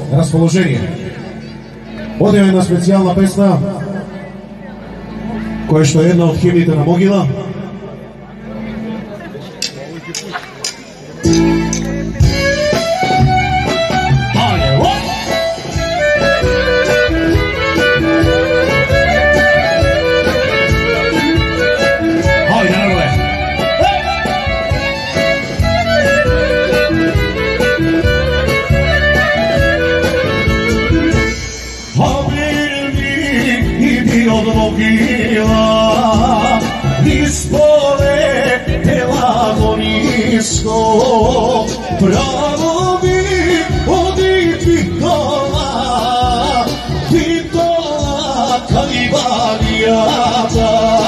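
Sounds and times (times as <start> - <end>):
steady beat: 9.6 - 51.0
accordion melody: 10.6 - 51.0
violin melody: 11.2 - 32.4.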